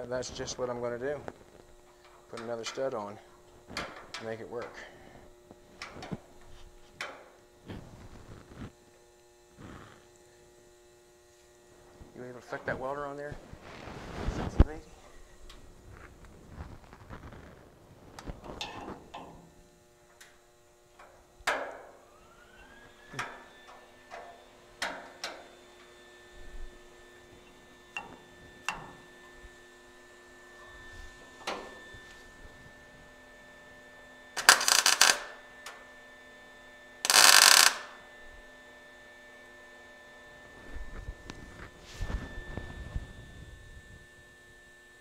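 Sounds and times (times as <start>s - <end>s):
welder fan humming: 0.0s - 45.0s
arc welding bursts: 34.4s - 35.5s, 37.0s - 38.0s.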